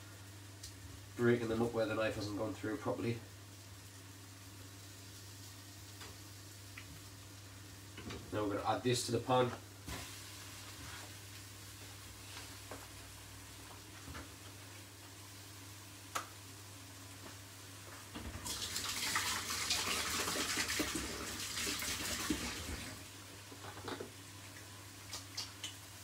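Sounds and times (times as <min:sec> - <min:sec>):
kitchen tap running: 0:18.4 - 0:23.0.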